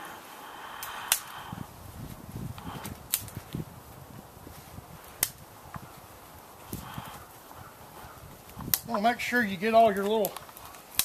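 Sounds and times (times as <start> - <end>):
dry twigs snapping: 0.8 - 1.4, 2.5 - 3.7, 5.0 - 9.0, 9.9 - 11.0
footsteps crunching in snow: 1.8 - 10.9.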